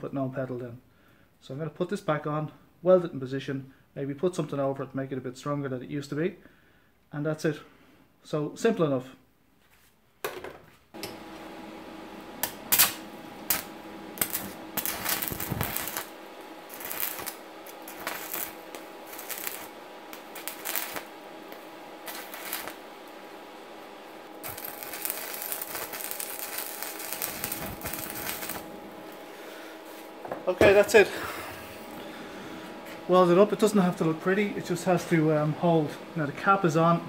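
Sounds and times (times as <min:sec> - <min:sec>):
arc welding hum and crackle: 0:11.0 - 0:37.0.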